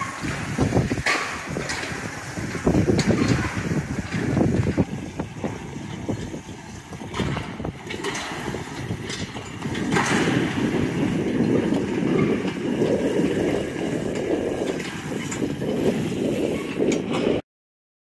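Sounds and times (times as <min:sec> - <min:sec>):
wagon wheels rumbling on gravel: 0:00.0 - 0:17.4.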